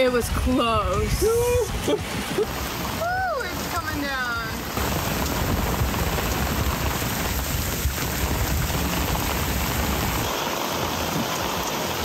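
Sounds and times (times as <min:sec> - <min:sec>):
heavy rain: 0:00.0 - 0:12.0
wind gusting against microphone: 0:00.0 - 0:12.0.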